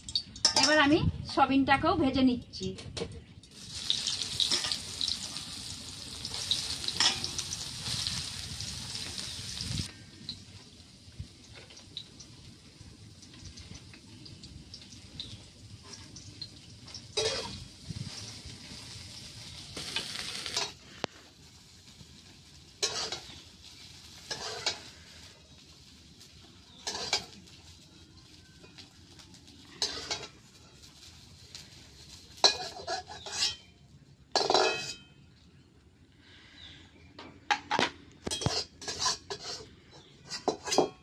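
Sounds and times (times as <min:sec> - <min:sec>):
food sizzling in hot oil: 0:03.5 - 0:33.7, 0:38.3 - 0:39.7
metal spatula scraping pan: 0:17.2 - 0:17.6, 0:22.8 - 0:23.4, 0:24.2 - 0:25.1, 0:26.7 - 0:27.4, 0:29.7 - 0:30.9, 0:32.4 - 0:33.7, 0:38.3 - 0:41.0.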